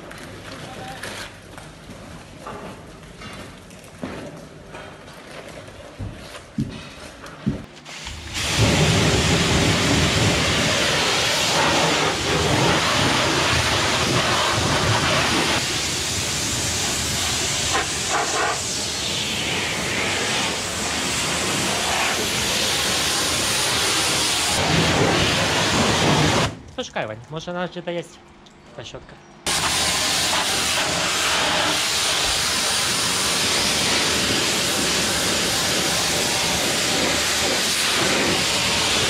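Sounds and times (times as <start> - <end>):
pressure washer spraying metal panels: 7.8 - 26.6, 29.5 - 39.0.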